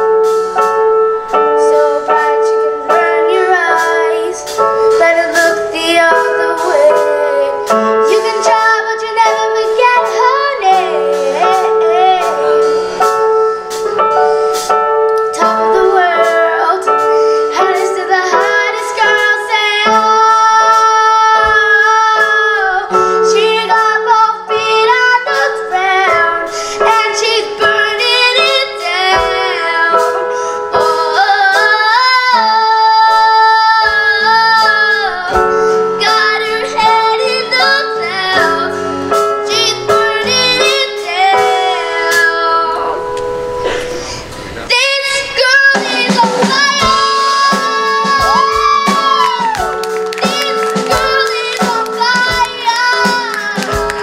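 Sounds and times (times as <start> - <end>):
keyboard chords: 0.0 - 54.0
girl singing with vibrato: 1.2 - 54.0
drum hits: 45.6 - 54.0.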